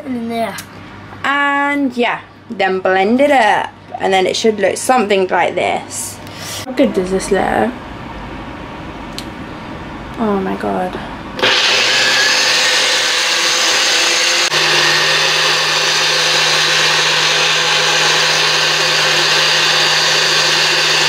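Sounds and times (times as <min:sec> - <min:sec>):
blender chopping fruit: 0:11.4 - 0:21.0.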